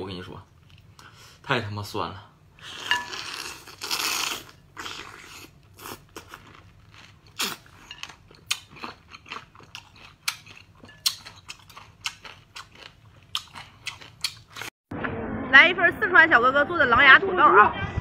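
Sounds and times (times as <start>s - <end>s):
wet chewing: 2.7s - 14.7s.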